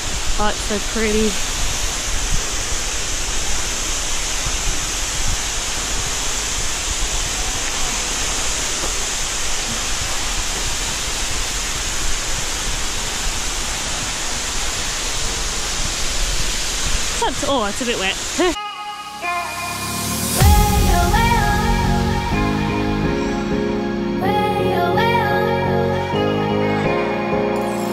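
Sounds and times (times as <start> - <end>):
waterfall splashing onto rocks: 0.0 - 18.6.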